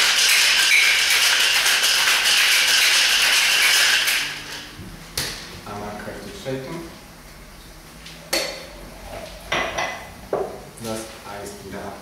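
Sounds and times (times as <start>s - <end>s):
ice rattling in cocktail shaker: 0.0s - 4.4s.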